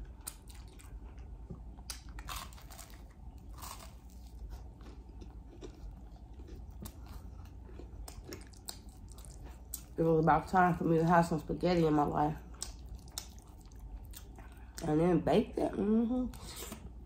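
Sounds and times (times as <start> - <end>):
crunchy bite and chewing: 0.1 - 9.9.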